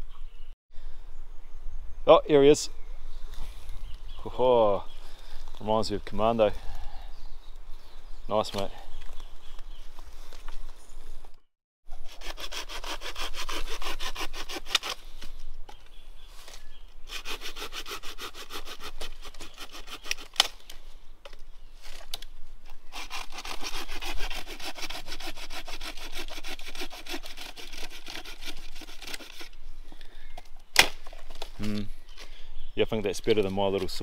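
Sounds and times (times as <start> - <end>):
hand saw cutting wood: 11.9 - 15.0, 17.1 - 20.5, 22.9 - 29.6.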